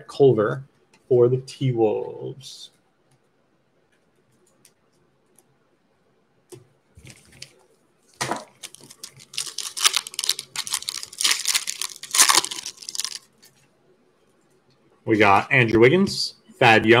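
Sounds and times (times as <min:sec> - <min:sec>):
foil wrapper crinkling and tearing: 0:08.5 - 0:13.5.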